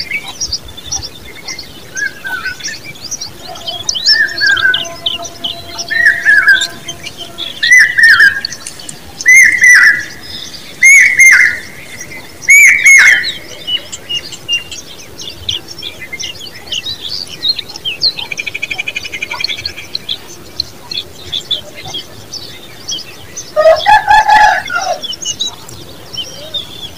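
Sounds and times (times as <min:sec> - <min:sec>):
bird soft chirps: 0:00.0 - 0:23.5
bird harsh calls: 0:00.0 - 0:26.9
bird buzzy trill: 0:02.3 - 0:10.2.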